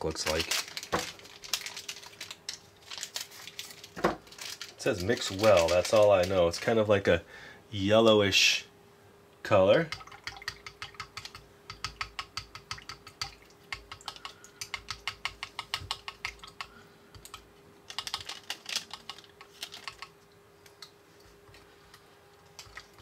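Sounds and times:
plastic stick tapping plastic tank: 0:09.9 - 0:16.7.

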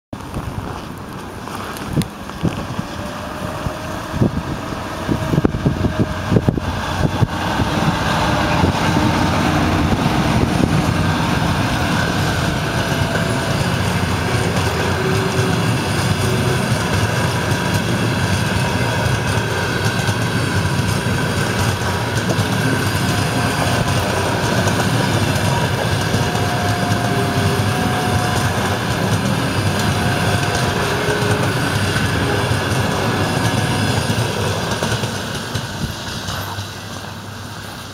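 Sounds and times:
train wheels rumbling on rail: 0:00.1 - 0:37.9.

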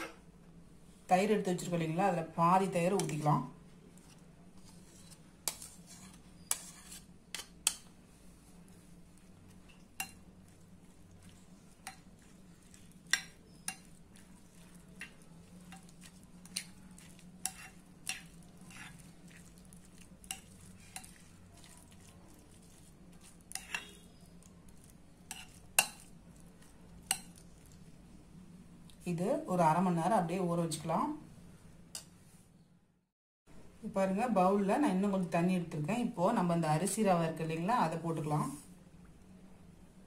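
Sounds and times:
metal spoon scraping bowl: 0:04.1 - 0:07.8, 0:15.7 - 0:19.5, 0:22.5 - 0:24.3, 0:25.2 - 0:26.1.

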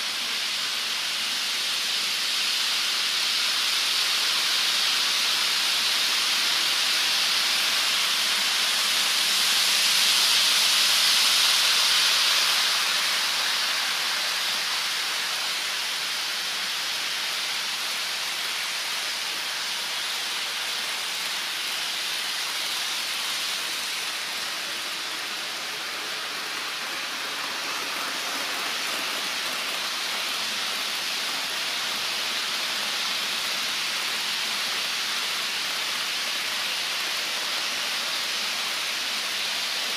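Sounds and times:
hiss of wheels and motors: 0:00.0 - 0:39.9
model trains rolling on track: 0:00.0 - 0:39.9.

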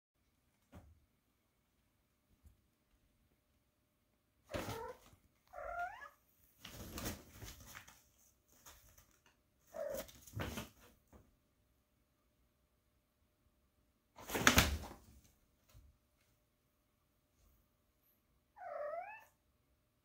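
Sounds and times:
cat meowing: 0:04.6 - 0:06.2, 0:18.6 - 0:19.4.

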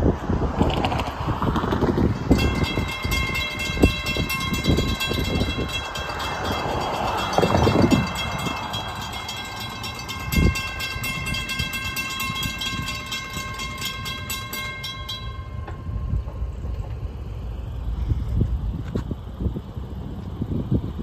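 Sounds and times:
low rumble: 0:00.0 - 0:21.0
railroad crossing bell ringing: 0:02.1 - 0:17.9.

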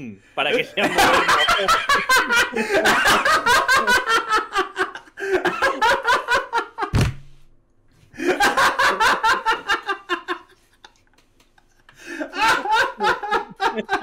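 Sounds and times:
men laughing hard: 0:00.6 - 0:06.9, 0:08.1 - 0:14.0
sharp thump: 0:06.9 - 0:07.4.

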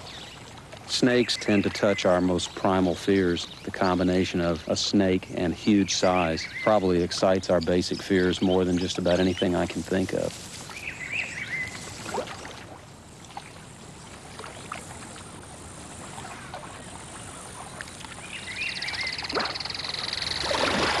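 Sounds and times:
water sloshing and dripping: 0:00.0 - 0:03.1, 0:10.3 - 0:21.0
rush of splashing water: 0:09.5 - 0:21.0.

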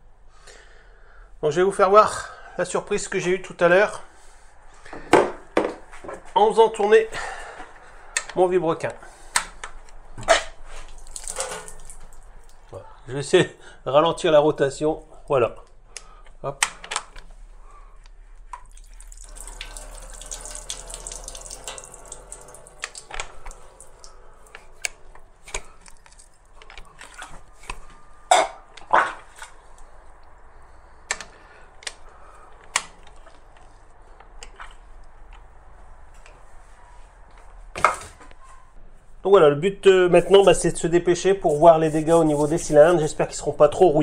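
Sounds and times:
water dripping: 0:10.8 - 0:12.8, 0:18.5 - 0:27.3
water gushing from engine: 0:11.0 - 0:12.3, 0:18.7 - 0:24.8.

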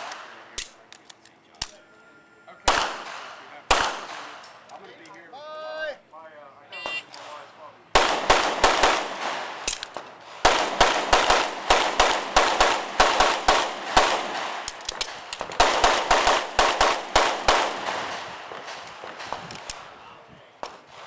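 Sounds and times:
pistol shots with echo: 0:02.6 - 0:04.6, 0:06.8 - 0:20.0.

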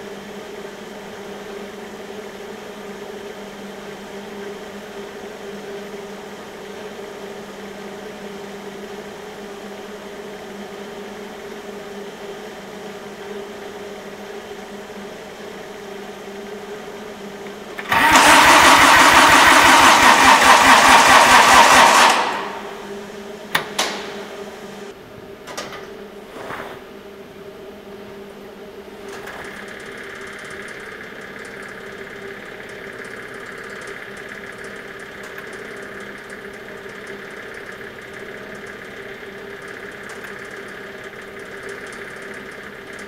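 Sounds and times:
steady low hum: 0:00.0 - 0:18.0, 0:21.8 - 0:43.0
starter cranking diesel engine: 0:17.4 - 0:24.4, 0:29.0 - 0:43.0.

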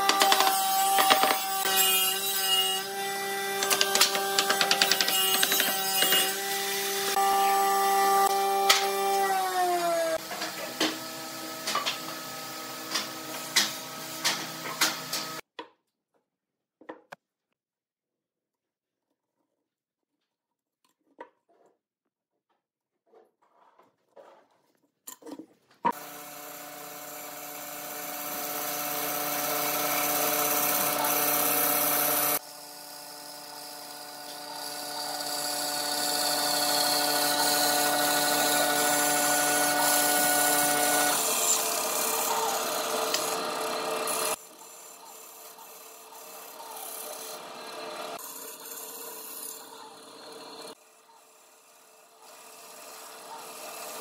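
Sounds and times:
band saw motor hum: 0:25.9 - 0:50.8.

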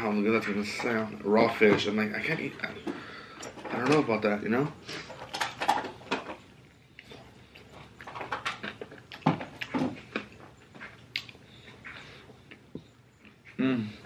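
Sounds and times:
person chewing wet mouth clicks: 0:11.1 - 0:13.6.

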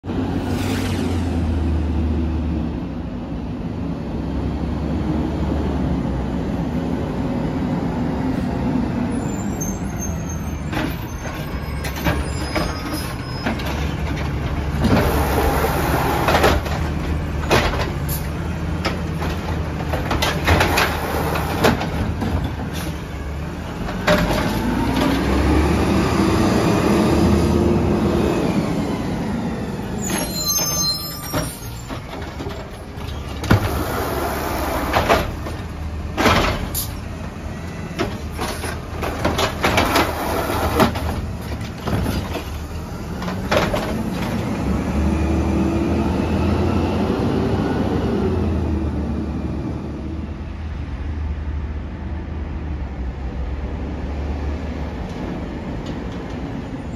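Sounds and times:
trash cart clanking and banging: 0:09.7 - 0:26.3, 0:29.8 - 0:44.8
truck engine revving: 0:24.4 - 0:29.9, 0:42.8 - 0:50.1.

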